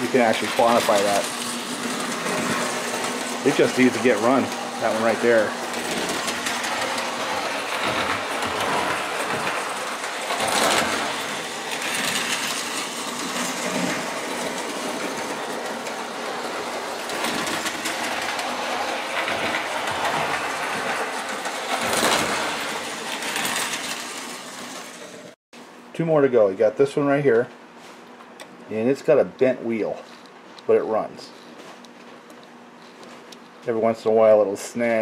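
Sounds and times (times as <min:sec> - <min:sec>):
toy trains whirring on rails: 0:00.0 - 0:25.4.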